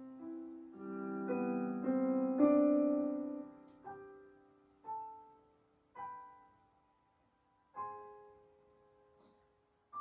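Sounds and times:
piano notes and chords: 0.0 - 10.0.

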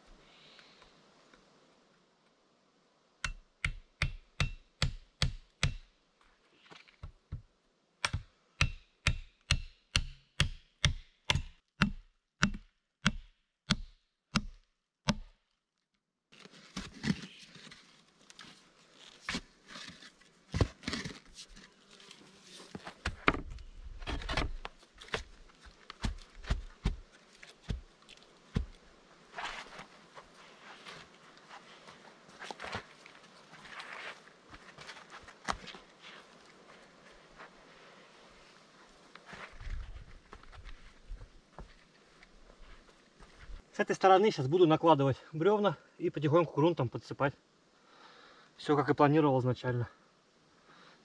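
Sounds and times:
tool striking wood: 3.2 - 5.9, 8.0 - 15.4
rustling: 16.3 - 43.6.

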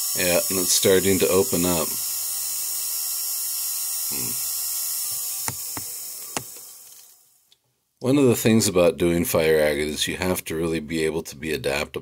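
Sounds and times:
rotary carving tool humming: 0.0 - 7.3.

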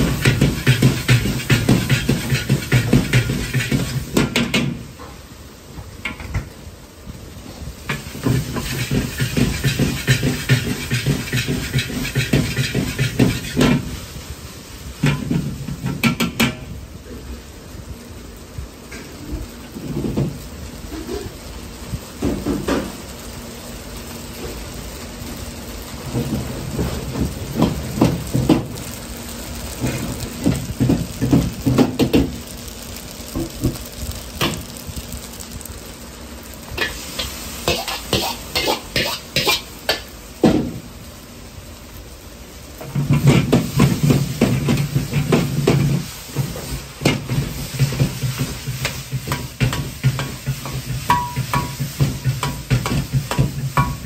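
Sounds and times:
metal ladle scraping wok: 0.0 - 4.1, 7.9 - 13.8, 36.8 - 39.7
food sizzling: 0.0 - 54.0
gas burner roaring: 0.0 - 54.0.

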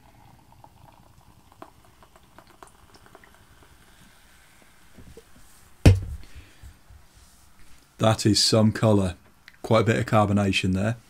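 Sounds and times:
drink fizzing in glass: 0.0 - 4.2
loud thump: 5.9 - 6.3.

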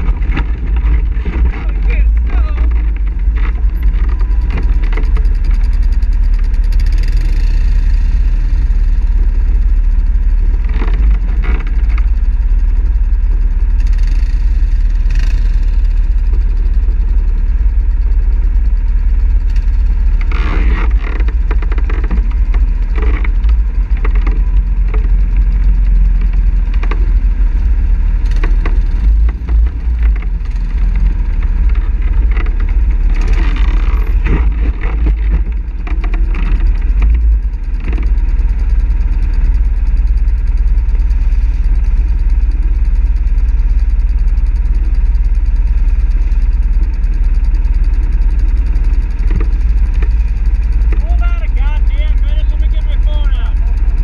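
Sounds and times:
knocks and clatters from bumps: 0.0 - 7.3, 10.5 - 12.2, 19.4 - 27.3, 28.2 - 40.8, 47.6 - 54.0
quad engine running: 0.0 - 54.0.

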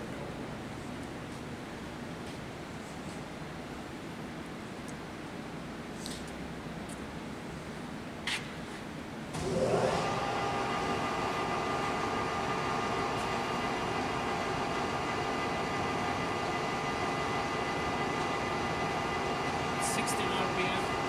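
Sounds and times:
lathe motor whine and hum: 9.3 - 21.0.

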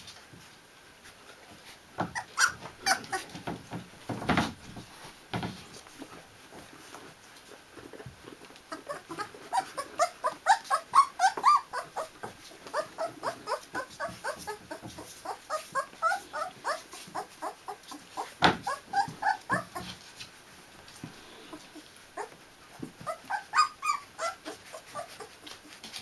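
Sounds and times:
puppy squeaking and whimpering: 2.0 - 3.5, 8.7 - 20.2, 21.5 - 26.0.

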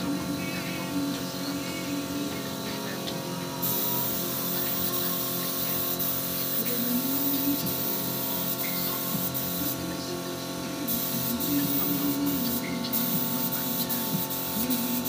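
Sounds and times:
spray gun hissing: 3.6 - 9.8, 10.9 - 15.0.

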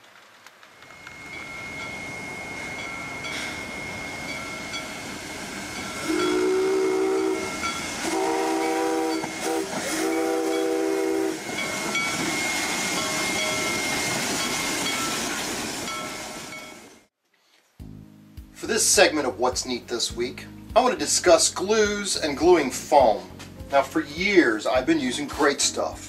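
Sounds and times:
steam hissing: 0.0 - 17.0
train running noise: 0.0 - 17.1
steam locomotive whistle blasts: 0.8 - 17.0.

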